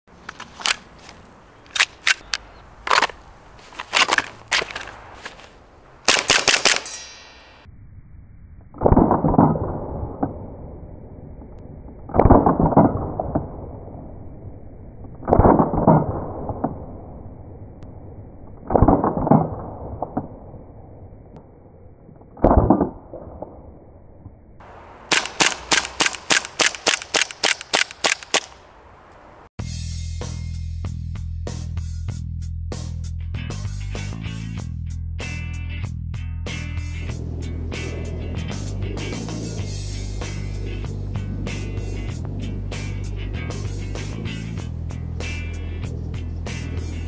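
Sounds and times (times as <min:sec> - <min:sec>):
airsoft pistol shots: 0:06.1 - 0:07.0, 0:25.1 - 0:28.6
slowed-down muffled shots: 0:11.6 - 0:14.0, 0:25.1 - 0:28.6.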